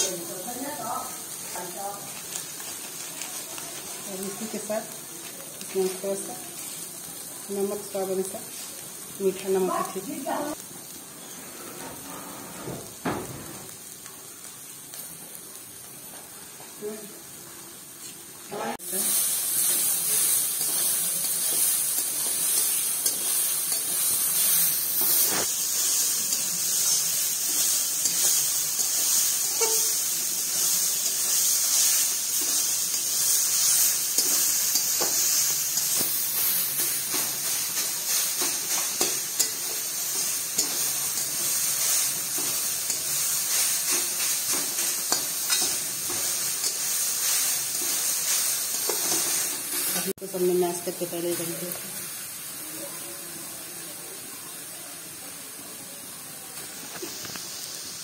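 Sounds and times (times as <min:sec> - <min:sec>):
vegetables sizzling in oil: 0:00.0 - 0:58.0
metal spatula scraping pan: 0:26.8 - 0:30.2.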